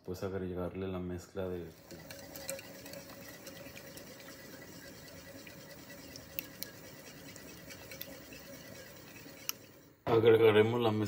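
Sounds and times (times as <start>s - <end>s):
whisk scraping a bowl: 1.6s - 10.1s.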